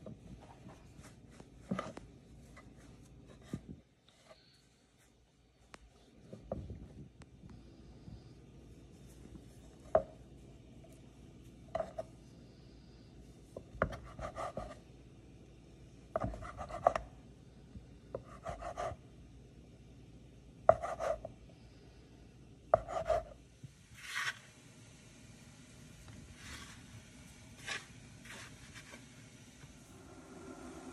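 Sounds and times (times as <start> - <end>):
knife scraping board: 24.0 - 24.4, 27.6 - 29.1.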